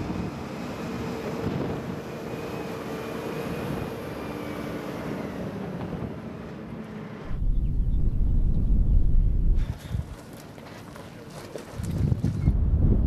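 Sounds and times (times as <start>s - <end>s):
truck diesel engine droning: 0.0s - 7.6s.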